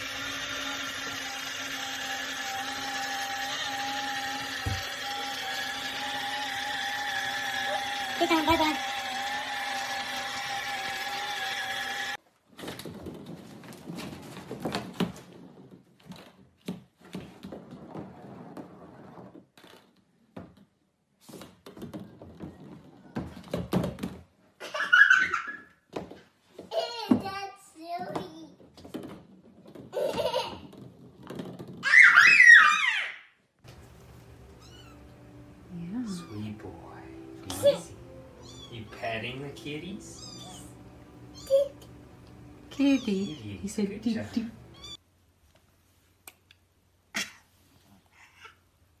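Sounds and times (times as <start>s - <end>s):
toy train electric motor whine: 0.0s - 12.2s.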